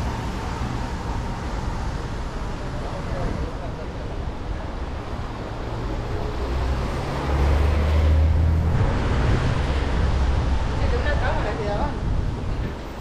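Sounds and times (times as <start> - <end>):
car engine and road hum: 4.0 - 13.0.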